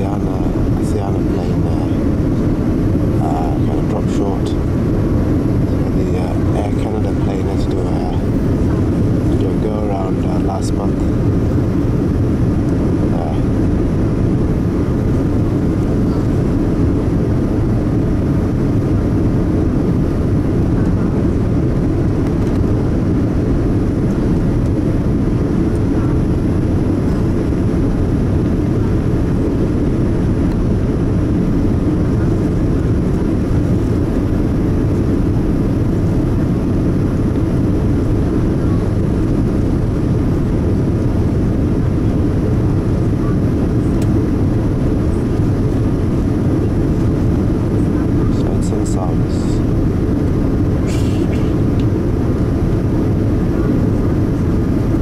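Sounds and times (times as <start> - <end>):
airplane cabin noise: 0.0 - 55.0.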